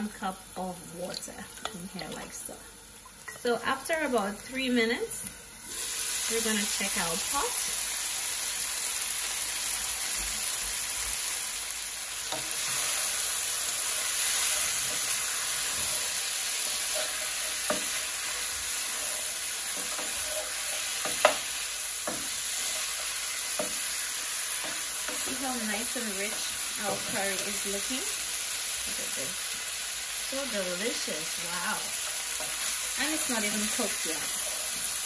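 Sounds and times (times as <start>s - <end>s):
chicken sizzling in a pot: 0.0s - 35.0s
wooden spoon stirring: 13.8s - 27.7s.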